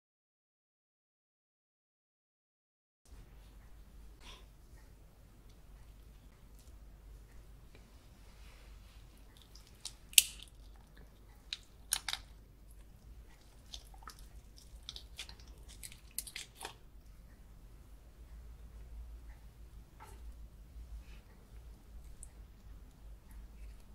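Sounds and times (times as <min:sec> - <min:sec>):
close-up chewing: 0:09.0 - 0:16.8.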